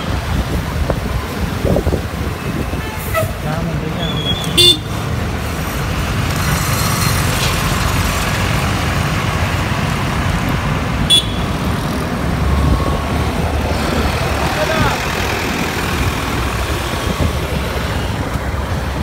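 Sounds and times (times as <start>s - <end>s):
street traffic rushing: 0.0s - 19.0s
truck passing rumble: 4.9s - 19.0s
horn beep: 11.1s - 11.6s.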